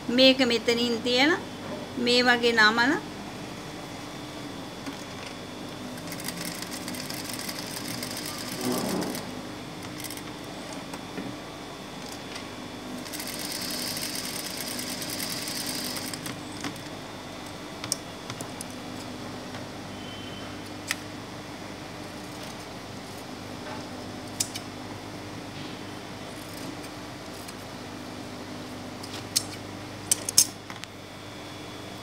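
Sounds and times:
steady hum: 0.0 - 32.0
sewing machine stitching: 6.0 - 9.3, 13.1 - 16.3.

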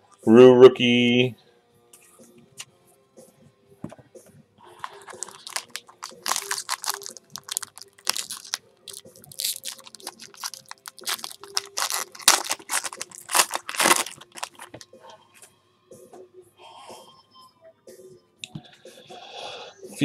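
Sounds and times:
foil wrapper crinkling and tearing: 4.8 - 14.8.

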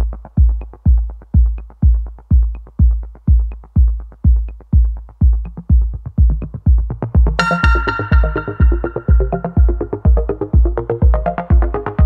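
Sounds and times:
electronic dance music: 7.4 - 10.8.

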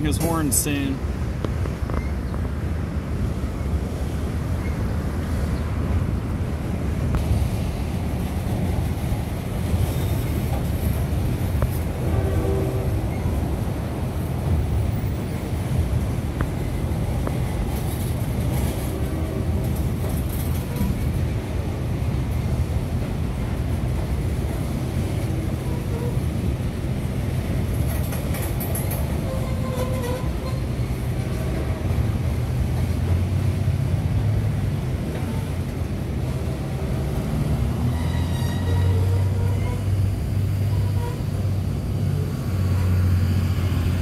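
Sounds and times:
train cars rumbling over bridge: 0.0 - 44.0.

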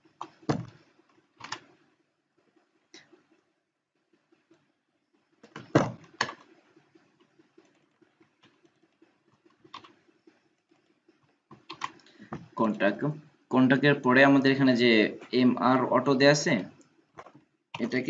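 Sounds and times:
faint steady hum: 0.0 - 18.0
keyboard and mouse clicks: 0.2 - 1.8, 5.4 - 6.6, 7.2 - 12.8, 16.8 - 18.0.

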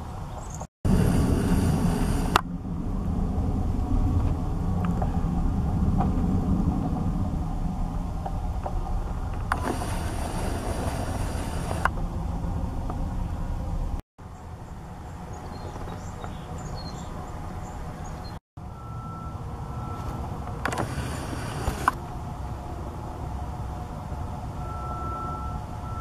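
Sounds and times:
wind rumble on microphone: 0.0 - 14.0
faint high bird chirps: 15.3 - 20.0.

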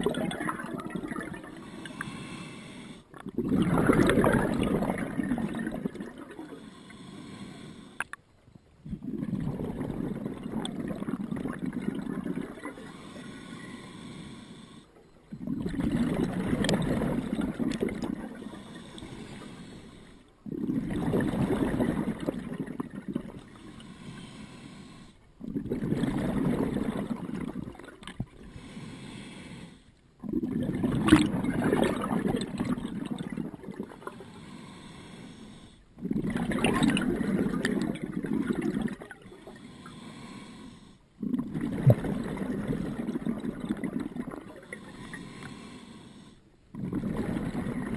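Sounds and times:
scuba regulator exhalation bubbles: 0.0 - 2.1, 3.2 - 6.6, 8.8 - 13.0, 15.3 - 19.2, 20.4 - 23.5, 25.4 - 28.4, 30.2 - 34.2, 36.0 - 39.6, 41.2 - 45.3, 46.7 - 47.9
regulator inhales: 1.6 - 3.1, 6.5 - 8.1, 12.9 - 15.0, 18.4 - 20.4, 23.5 - 25.3, 28.4 - 30.0, 34.1 - 35.9, 39.2 - 41.1, 44.7 - 46.6.

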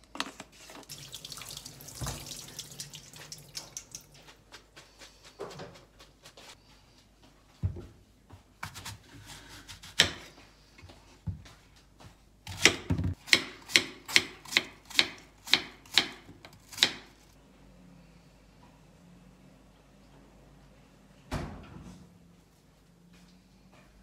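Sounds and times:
knife chopping apple: 8.6 - 10.4, 12.5 - 17.2.

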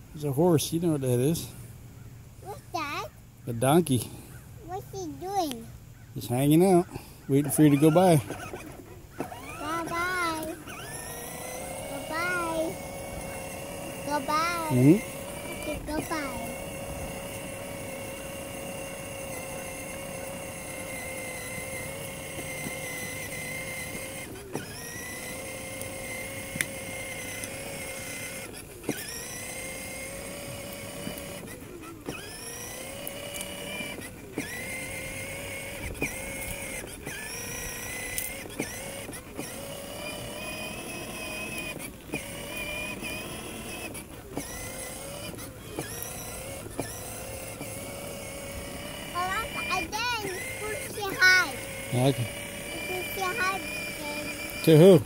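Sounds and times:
electric motor whining: 6.2 - 55.0.

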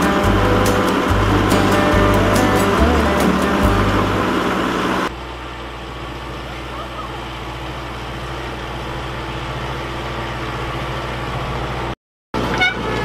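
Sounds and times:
tractor diesel engine running: 0.0 - 13.0.

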